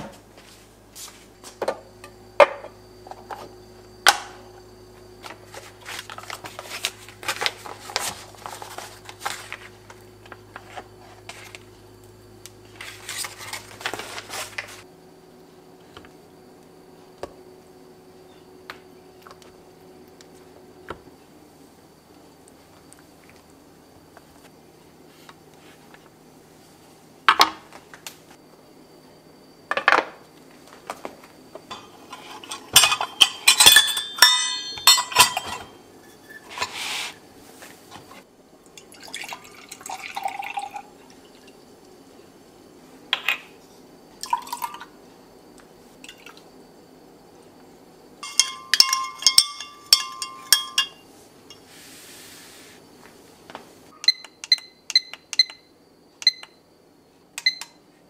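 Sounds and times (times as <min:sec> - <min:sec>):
spoon stirring and clinking glass jug: 0:31.7 - 0:36.8, 0:48.2 - 0:51.6
ringing metal clinks: 0:32.8 - 0:36.3, 0:48.2 - 0:51.6
utensils knocking and clicking: 0:48.2 - 0:51.0.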